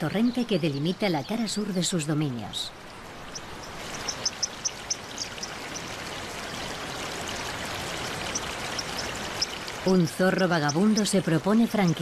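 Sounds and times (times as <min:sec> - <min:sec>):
water rushing over rocks: 0:02.8 - 0:12.0.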